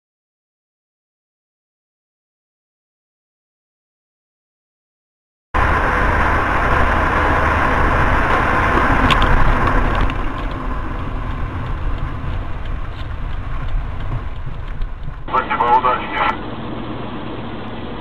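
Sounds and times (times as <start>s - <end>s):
car engine and tyre noise: 5.6s - 18.0s.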